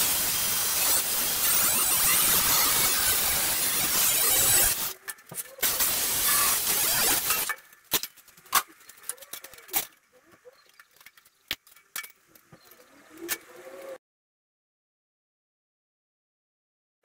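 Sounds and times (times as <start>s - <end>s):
power tool cutting sheet steel: 0.0s - 5.0s, 5.6s - 7.6s.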